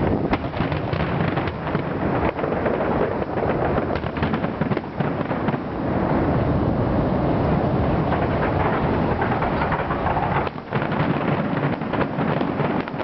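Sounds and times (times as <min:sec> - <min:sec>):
fireworks bangs and crackles: 0:00.0 - 0:13.0
low rumble: 0:00.0 - 0:13.0.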